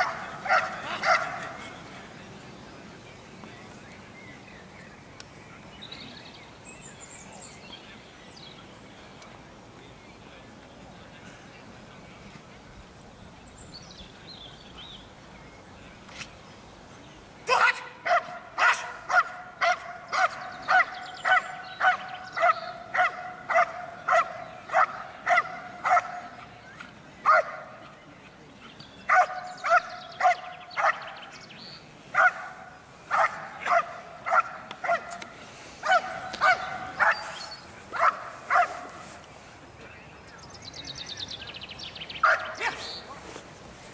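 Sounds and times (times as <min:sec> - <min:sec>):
dog barking hard: 0:00.0 - 0:01.5, 0:18.0 - 0:26.3, 0:27.3 - 0:27.6, 0:29.1 - 0:31.1, 0:32.2 - 0:35.2, 0:35.8 - 0:37.3, 0:38.0 - 0:38.9, 0:42.2 - 0:42.8.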